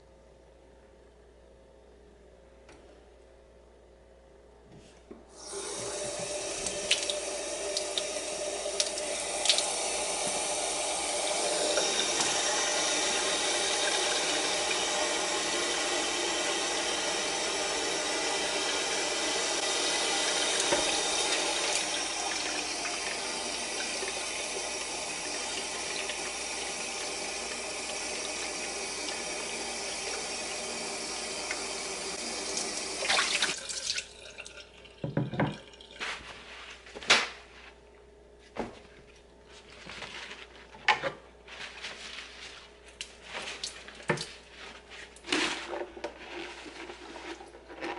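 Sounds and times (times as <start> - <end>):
tap water running into sink: 5.4 - 36.0, 43.6 - 44.4.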